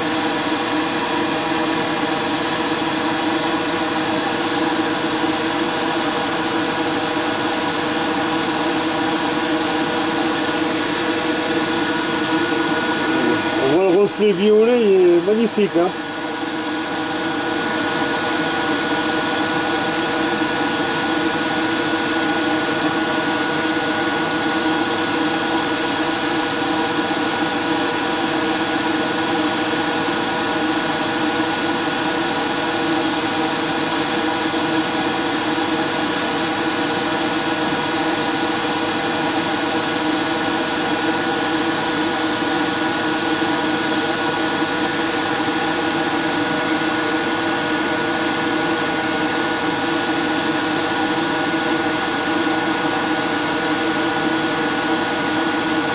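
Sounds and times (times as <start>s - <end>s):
compressor motor hum: 0.0s - 37.0s
high compressor whine: 0.0s - 55.9s
airbrush spraying air hiss: 0.1s - 11.1s, 14.8s - 27.2s, 48.4s - 54.4s.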